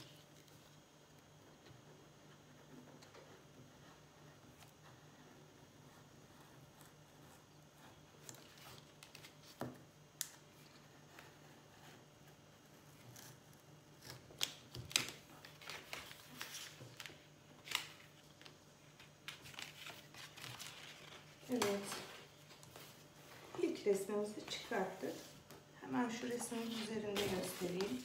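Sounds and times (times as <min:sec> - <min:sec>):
paper rustling: 0:14.0 - 0:25.5, 0:26.1 - 0:28.0.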